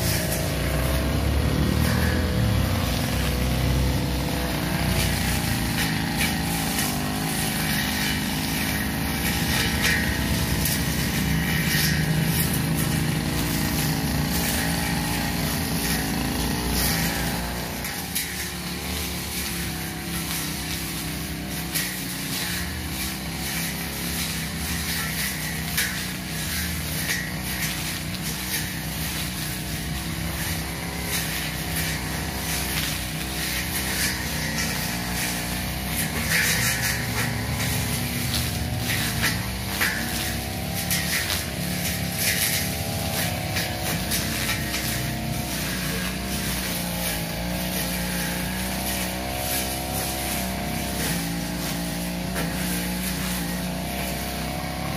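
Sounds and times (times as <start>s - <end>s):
blade cutting through grass: 0.0s - 54.9s
brush cutter engine running: 0.0s - 54.9s.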